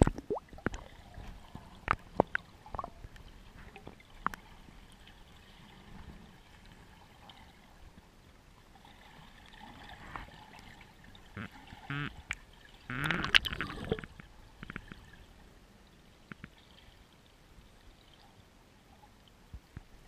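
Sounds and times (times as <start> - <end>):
sharp clicks underwater: 0.0 - 0.9, 1.8 - 4.4, 11.4 - 15.1, 16.2 - 16.7
bubbling gurgles: 0.0 - 3.8, 12.9 - 14.2
muffled underwater sound: 11.3 - 14.8.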